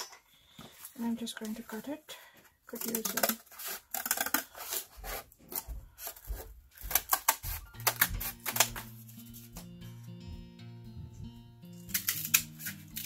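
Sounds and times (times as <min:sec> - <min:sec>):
scissors cutting cardboard: 0:02.8 - 0:09.0
background music with held notes: 0:06.8 - 0:13.0.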